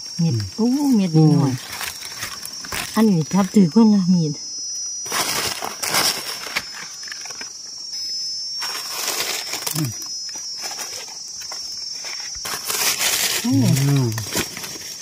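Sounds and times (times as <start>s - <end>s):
high-pitched insect drone: 0.0s - 15.0s
dry leaves rustling: 5.0s - 7.4s, 8.6s - 9.9s, 10.5s - 15.0s.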